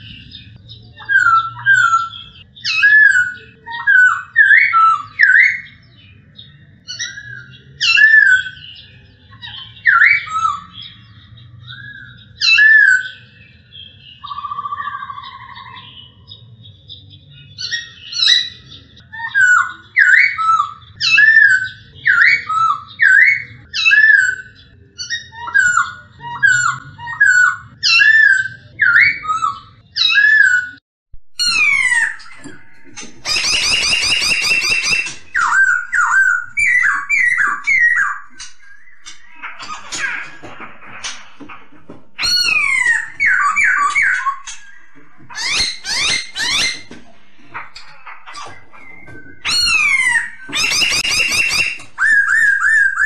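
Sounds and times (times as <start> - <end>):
bird whistling song: 0.0 - 16.4, 17.3 - 30.8, 31.4 - 40.4, 42.2 - 47.0, 47.6 - 53.0
low bird trill: 0.0 - 16.4, 31.4 - 40.4, 41.0 - 53.0.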